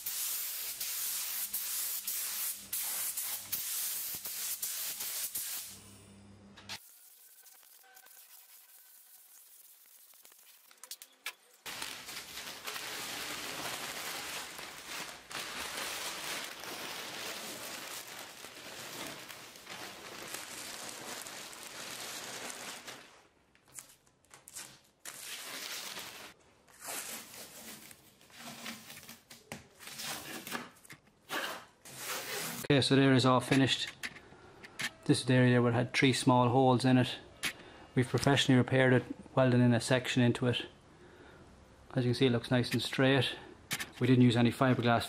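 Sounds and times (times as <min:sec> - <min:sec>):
paper and tape tearing off: 0:06.7 - 0:32.7.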